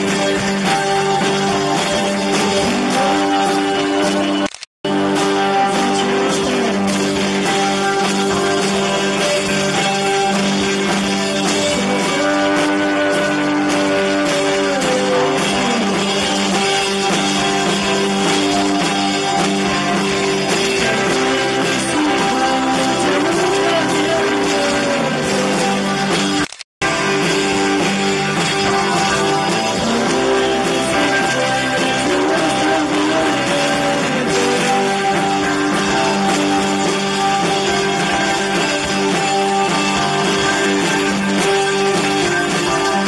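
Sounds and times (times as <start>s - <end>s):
drums: 0.0s - 43.0s
electric guitars sustained chords: 0.0s - 43.0s.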